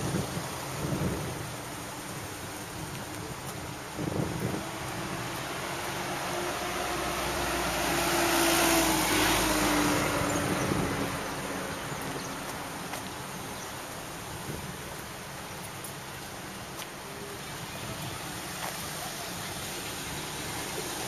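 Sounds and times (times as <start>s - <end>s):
street traffic: 0.0s - 21.0s
car driving past: 4.7s - 12.4s.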